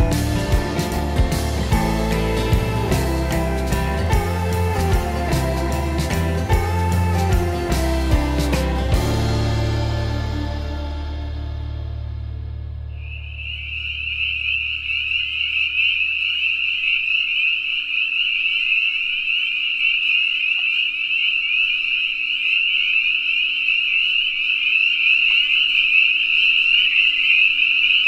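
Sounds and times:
background music: 0:00.0 - 0:12.9
frogs calling: 0:12.9 - 0:28.0.

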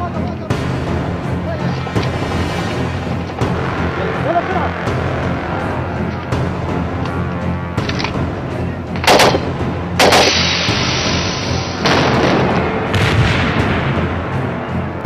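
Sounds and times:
low music: 0:00.0 - 0:15.0
rifle gunshots: 0:09.0 - 0:13.7.

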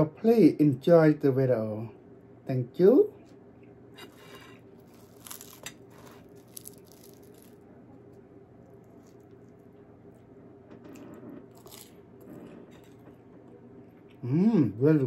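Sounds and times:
low steady hum: 0:00.0 - 0:15.0
flaky pastry crackling: 0:04.0 - 0:13.0.

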